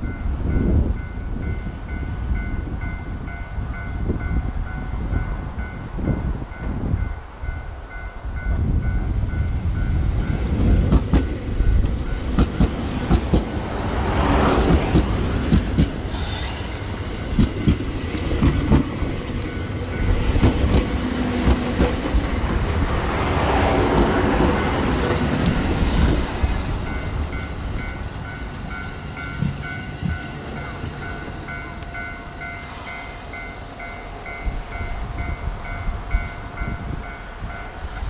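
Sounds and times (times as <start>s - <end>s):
train rumble: 0.0s - 38.0s
train wheels clickety-clack: 8.4s - 32.7s.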